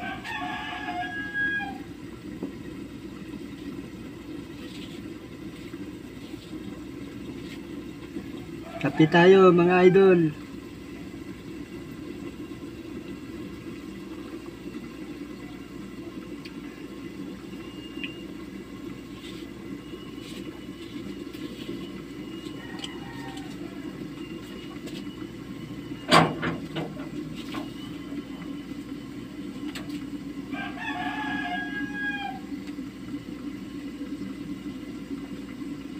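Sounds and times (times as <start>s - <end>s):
rooster crowing: 0.0s - 1.9s, 8.6s - 10.3s, 22.3s - 24.3s, 30.5s - 32.6s
stove rumbling: 0.0s - 35.9s.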